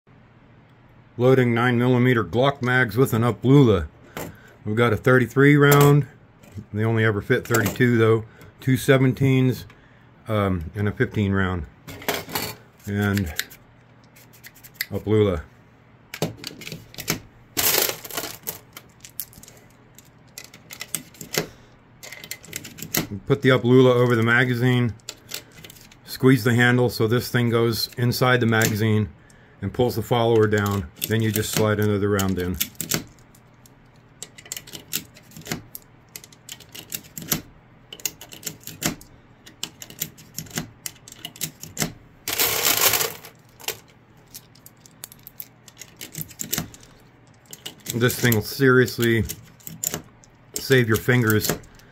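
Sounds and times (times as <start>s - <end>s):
metal and plastic rattle: 16.2s - 24.4s, 34.2s - 51.9s.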